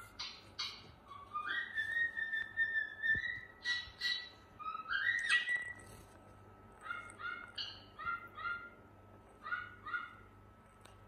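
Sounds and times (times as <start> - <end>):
harsh bird chirps: 0.0 - 6.0, 6.8 - 8.8
cockatiel whistling: 0.2 - 5.8.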